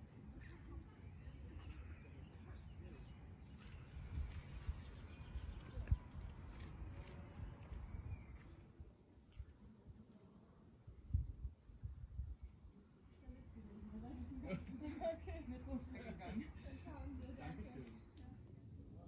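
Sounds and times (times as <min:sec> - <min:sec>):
cricket chirping: 0:03.4 - 0:09.0.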